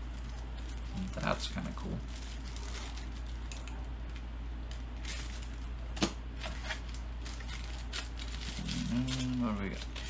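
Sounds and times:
plastic bag rustling and crinkling: 0:00.0 - 0:03.6, 0:06.4 - 0:10.0
steady low hum: 0:00.0 - 0:10.0.

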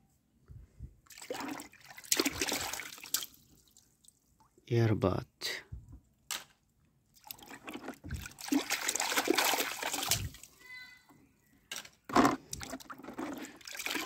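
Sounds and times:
hand splashing water in tub: 0:01.1 - 0:03.8, 0:07.2 - 0:10.5, 0:12.6 - 0:14.0.

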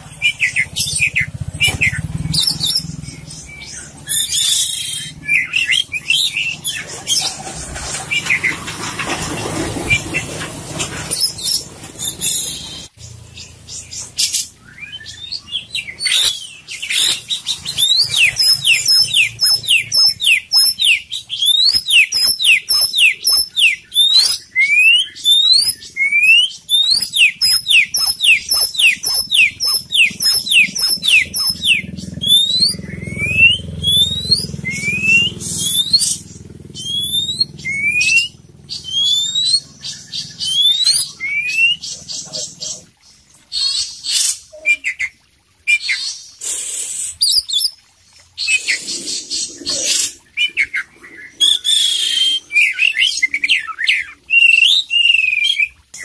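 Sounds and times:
bird singing rising whistles: 0:00.2 - 0:08.6, 0:14.6 - 0:41.8, 0:46.8 - 0:47.8, 0:50.3 - 0:55.8.

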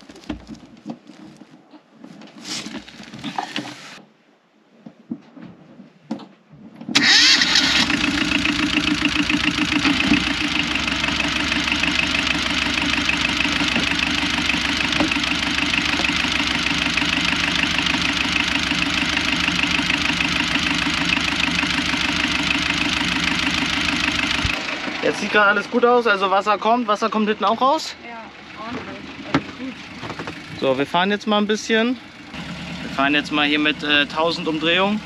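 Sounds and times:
diesel engine starting and idling: 0:07.0 - 0:35.0.

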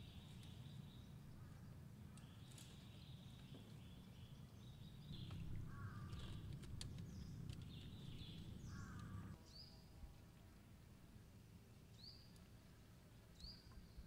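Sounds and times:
low steady rumble: 0:00.0 - 0:09.4
birds chirping and warbling: 0:00.0 - 0:09.8
sharp clicks: 0:06.0 - 0:09.4.

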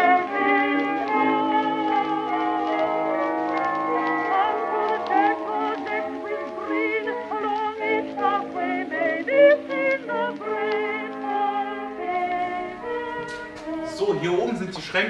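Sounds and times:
vibrato melody over sustained chords: 0:00.9 - 0:08.2.

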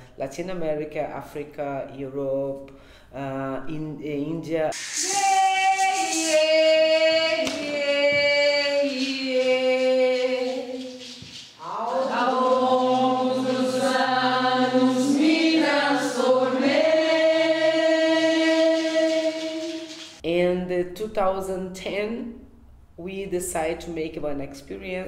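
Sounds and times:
group singing unaccompanied: 0:04.8 - 0:20.2.

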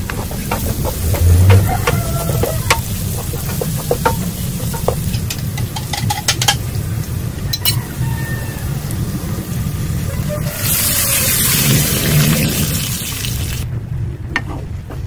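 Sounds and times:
spatula tapping pan: 0:00.0 - 0:06.6
paste frying: 0:00.0 - 0:13.6.

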